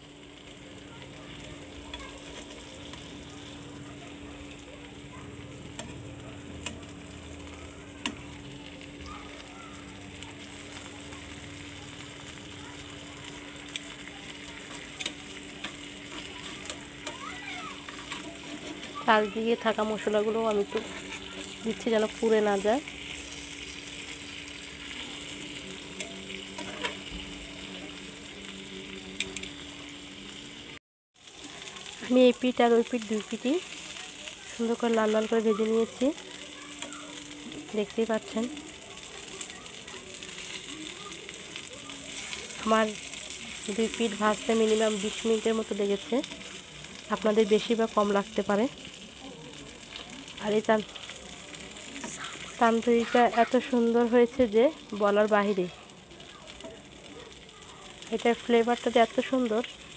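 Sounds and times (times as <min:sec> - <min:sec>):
chicken sizzling in oil: 0:00.0 - 0:59.9
metal tongs clicking on pan: 0:14.5 - 0:17.2.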